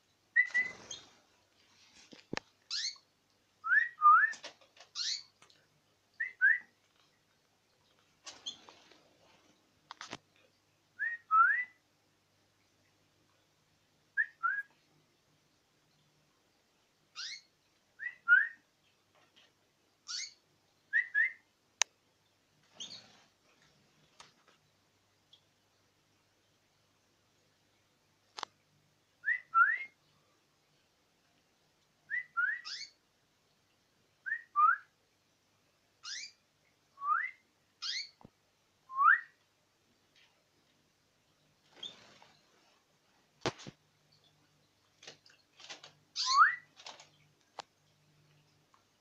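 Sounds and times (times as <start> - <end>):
canary whistled call notes: 0.4 - 1.0, 17.2 - 18.6, 20.1 - 21.4, 29.2 - 30.0, 32.1 - 33.0, 36.0 - 36.4, 37.0 - 38.2, 38.9 - 39.4, 46.2 - 46.7
canary chirping: 0.4 - 1.2, 2.7 - 5.4, 8.3 - 8.7, 17.1 - 18.6, 20.0 - 21.4, 22.7 - 23.2, 32.1 - 33.0, 36.0 - 36.4, 37.1 - 38.3, 41.7 - 42.4, 45.6 - 47.2.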